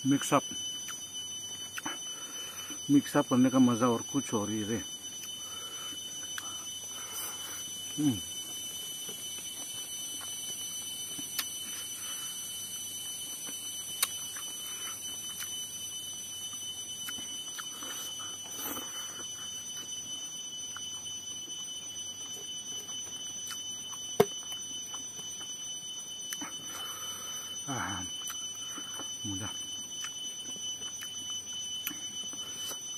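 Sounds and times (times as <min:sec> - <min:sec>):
high-pitched whine: 0:00.0 - 0:32.9.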